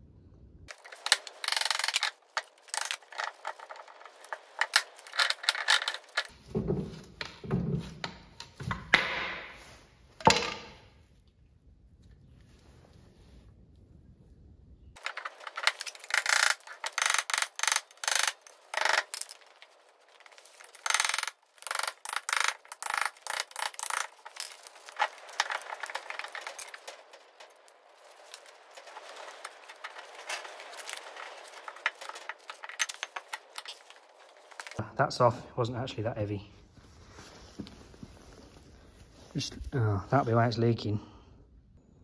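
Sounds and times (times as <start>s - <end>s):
metal tools clinking and rattling: 0.7s - 6.3s, 15.0s - 34.8s.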